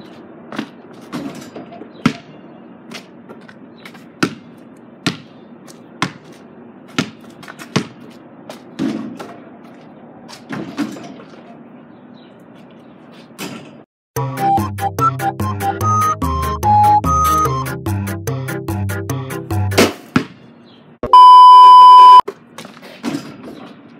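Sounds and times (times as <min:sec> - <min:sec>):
basketball bouncing: 0:02.0 - 0:02.3, 0:04.2 - 0:05.4, 0:06.0 - 0:09.3.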